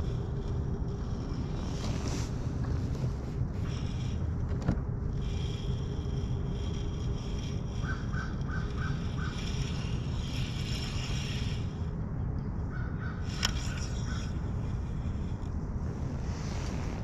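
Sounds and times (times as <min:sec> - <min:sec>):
low background rush: 0:00.0 - 0:17.0
crow cawing: 0:07.8 - 0:09.4, 0:12.7 - 0:13.3.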